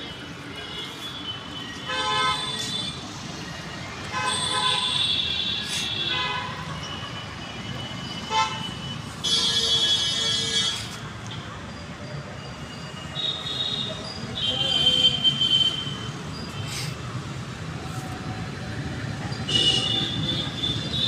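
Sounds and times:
road noise hum: 0.0 - 11.8, 13.8 - 21.0
vehicle horns honking: 1.9 - 3.0, 8.3 - 11.0, 19.5 - 21.0.

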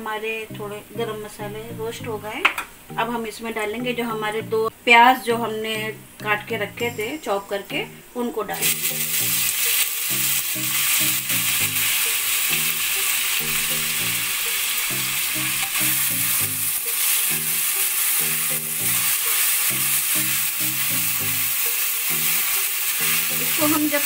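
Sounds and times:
onions sizzling in hot fat: 8.6 - 24.0.

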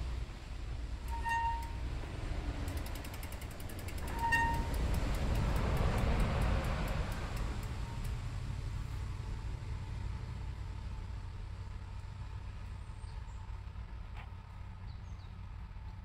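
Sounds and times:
disc brake rotor ticking: 0.9 - 8.4
short metallic rings: 1.1 - 1.9, 2.7 - 5.5.

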